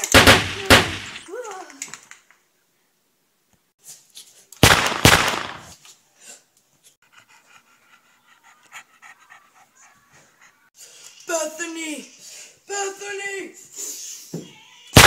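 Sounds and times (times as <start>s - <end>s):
dog panting: 6.9s - 10.8s.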